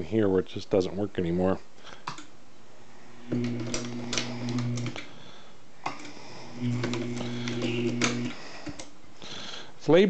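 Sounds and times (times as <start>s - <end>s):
motor humming: 3.1s - 5.1s, 5.9s - 8.9s.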